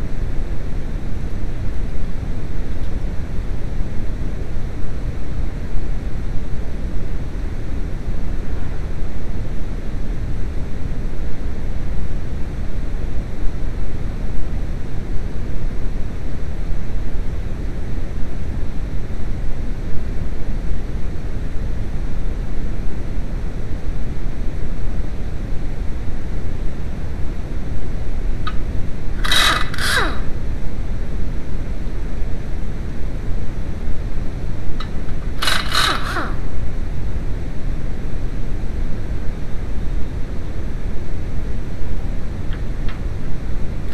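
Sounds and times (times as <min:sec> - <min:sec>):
air impact wrench bursts: 0:29.2 - 0:30.4, 0:34.8 - 0:36.5.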